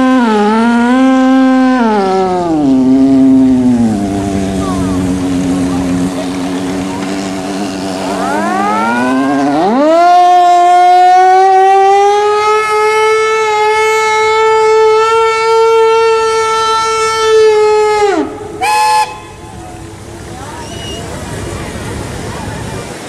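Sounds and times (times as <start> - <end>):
low multi-tone steam whistle: 8.2 - 19.8
high steam whistle rising: 8.2 - 21.2.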